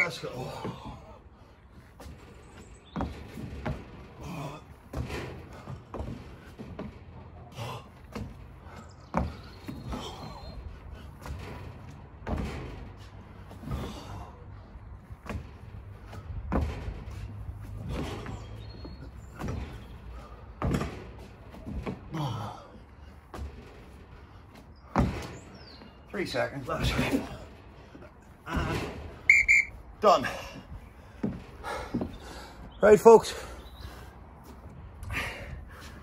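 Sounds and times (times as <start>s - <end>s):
thuds on wooden deck: 11.2s - 14.3s, 15.0s - 22.1s, 24.8s - 25.9s.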